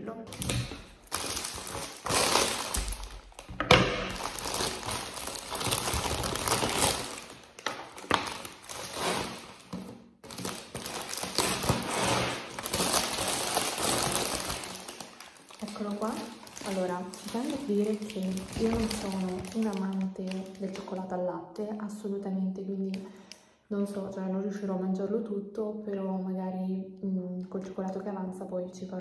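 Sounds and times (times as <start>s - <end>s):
plastic wrapper crinkling: 0.3s - 21.2s.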